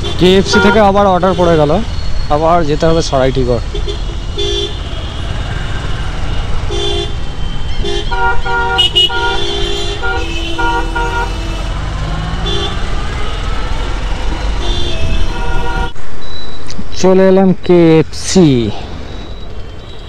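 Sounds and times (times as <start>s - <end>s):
vehicle horns honking: 0.0s - 1.7s, 3.6s - 16.0s.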